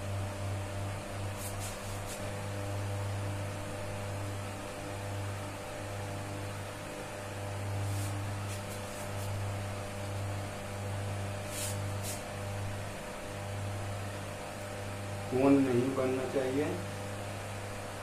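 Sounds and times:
low electrical hum: 0:00.0 - 0:18.0
marker scratching on whiteboard: 0:07.9 - 0:09.4.

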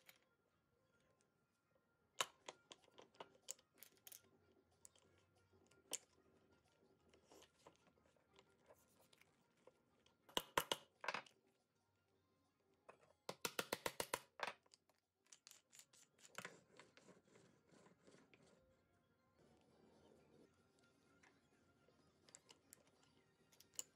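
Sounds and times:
wooden pieces clicking: 0:13.3 - 0:15.9.

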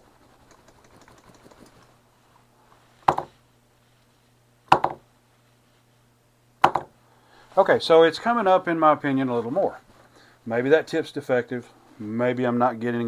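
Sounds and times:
soldering iron knocking on mat: 0:03.1 - 0:03.4, 0:04.7 - 0:05.0, 0:06.6 - 0:06.9.

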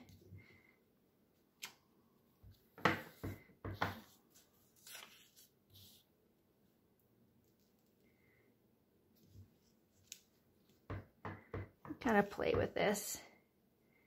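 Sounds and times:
paper rustling: 0:03.9 - 0:06.1.

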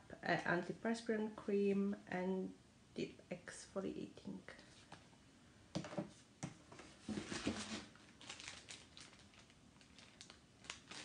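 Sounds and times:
packaging rustling: 0:06.8 - 0:11.0.

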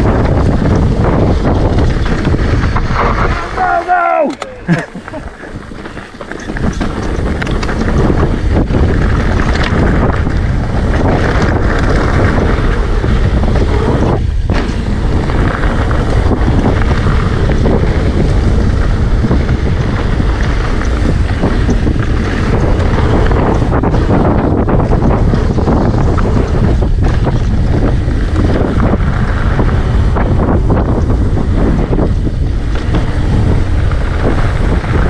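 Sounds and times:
bike tyres rumbling on gravel: 0:00.0 - 0:35.0
wind buffeting microphone: 0:00.0 - 0:35.0.

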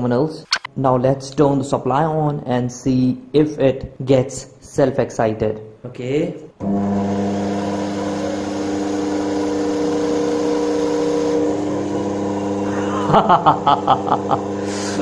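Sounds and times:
electric motor humming: 0:06.6 - 0:15.0.

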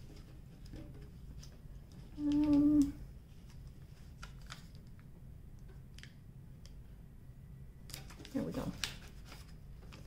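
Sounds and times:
woman humming: 0:02.2 - 0:03.0.

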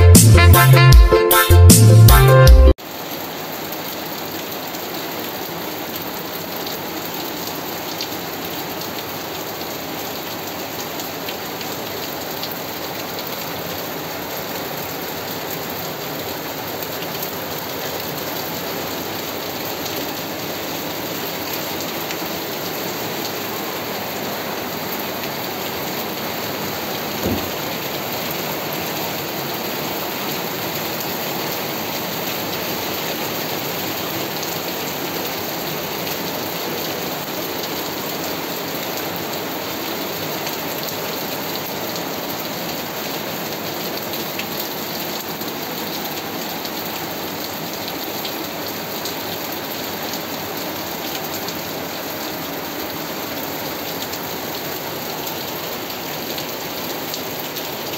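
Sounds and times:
steady rain falling: 0:02.8 - 0:57.9
brief low thump: 0:27.2 - 0:27.6.

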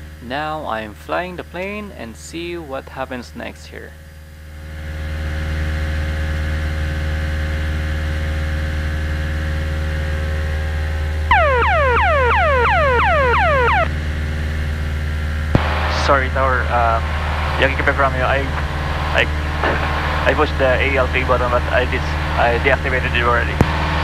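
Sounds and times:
plane engine droning: 0:04.5 - 0:24.0
alarm of rapid falling tones: 0:11.3 - 0:13.9.

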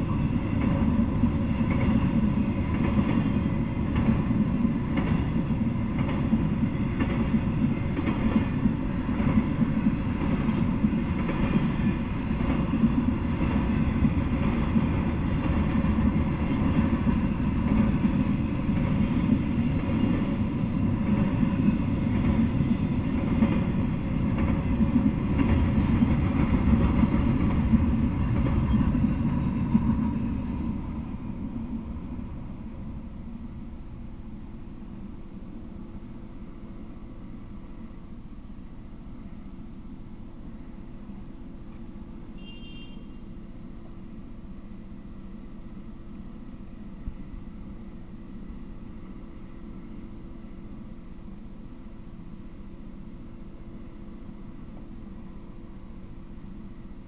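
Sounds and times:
freight train rumbling past: 0:00.0 - 0:42.6.

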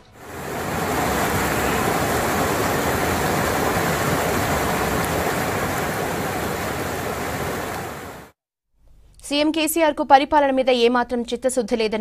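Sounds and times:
floodwater rushing: 0:00.1 - 0:08.3.

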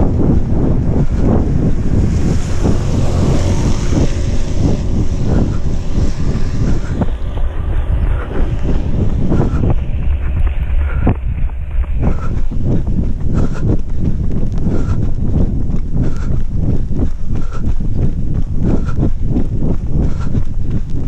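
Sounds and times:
wind buffeting microphone: 0:00.0 - 0:21.0
runner's footfalls: 0:08.1 - 0:21.0.

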